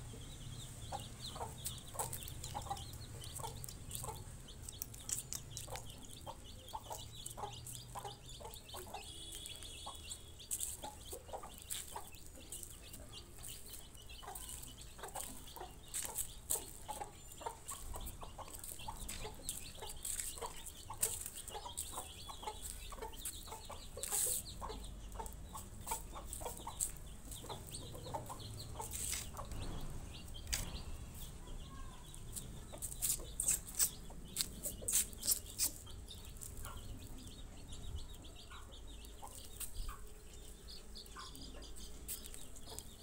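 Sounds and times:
chickens clucking: 0.0 - 43.0
sharp clicks and ticks: 1.6 - 7.4.

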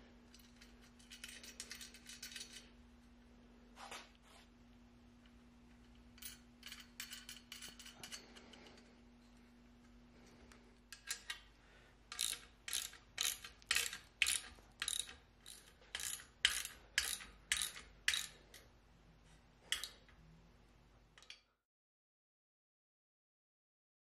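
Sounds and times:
ratchet wrench clicking: 12.1 - 18.4.

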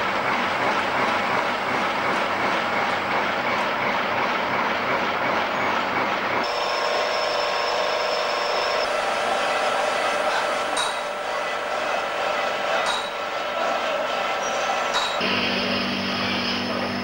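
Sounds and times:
metal lathe whining: 6.3 - 17.0.

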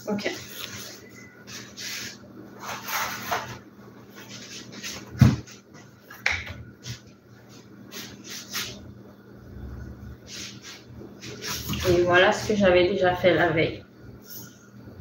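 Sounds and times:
silicone mat rubbing and rustling: 0.4 - 5.6, 10.3 - 12.6.

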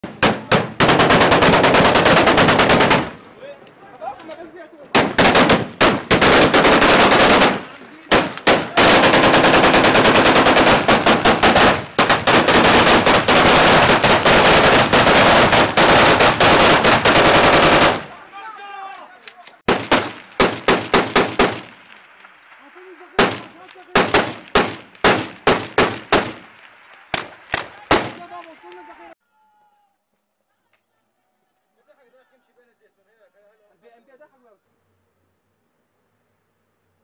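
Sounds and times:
assault rifles firing automatic bursts: 0.0 - 3.3, 4.9 - 18.2, 19.7 - 21.9, 23.2 - 28.3.

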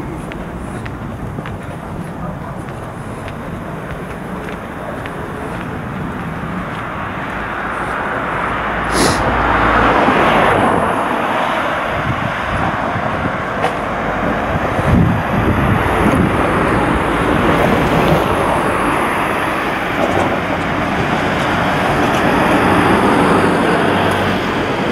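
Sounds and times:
street traffic: 0.0 - 24.9
car passing close by: 6.4 - 24.9.

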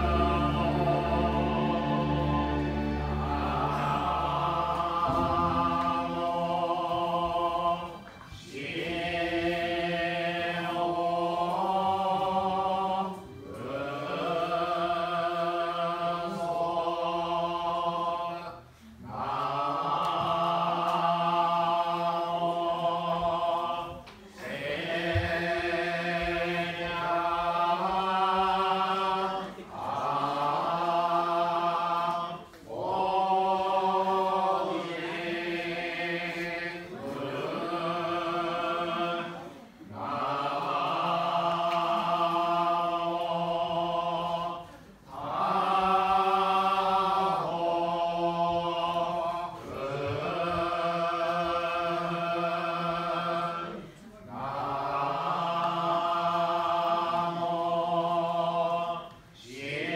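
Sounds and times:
monks chanting together: 0.0 - 59.9.

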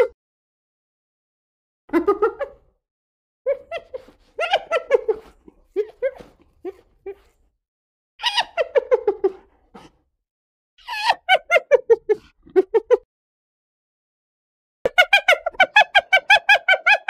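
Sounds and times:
hyena giggling: 3.5 - 7.4, 8.2 - 10.0.

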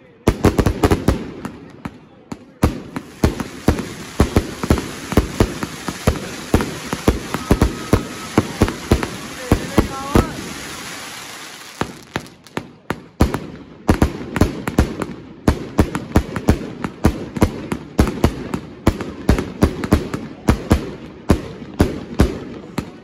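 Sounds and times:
firework cake bangs: 0.3 - 23.0
firework hiss: 2.8 - 12.6.

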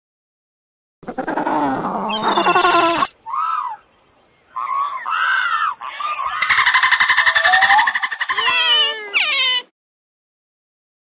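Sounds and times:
recorded animal calls: 1.0 - 9.7.

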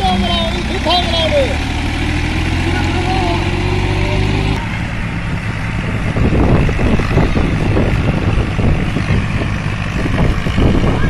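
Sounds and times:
tractor engine running: 0.0 - 11.0
gusty wind on microphone: 3.7 - 11.0.

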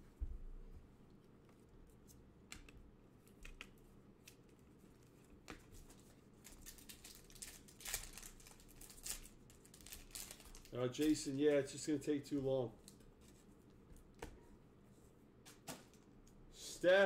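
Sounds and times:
wrapper crinkling and tearing: 6.4 - 11.2.

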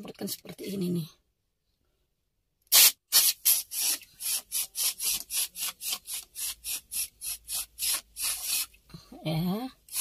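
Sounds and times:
aerosol can spraying in bursts: 2.7 - 8.8.

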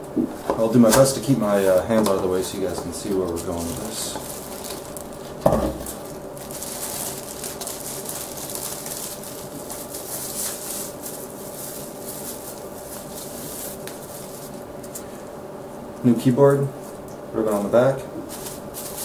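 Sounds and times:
steady low hum: 0.0 - 19.0
bubble wrap crinkling: 0.4 - 15.1, 16.8 - 19.0.

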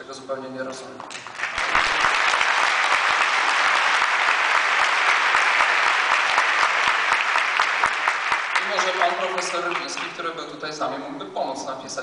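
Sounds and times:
audience applauding: 1.1 - 10.4.

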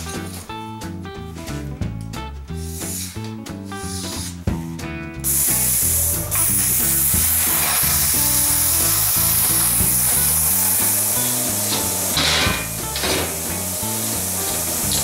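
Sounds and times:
background music: 0.0 - 15.0
plasma cutter hissing: 5.2 - 15.0.

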